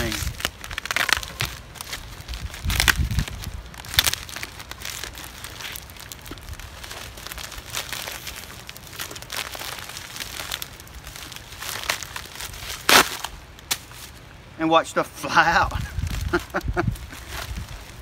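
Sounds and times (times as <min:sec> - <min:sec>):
envelope crinkling and tearing: 0:00.0 - 0:14.1.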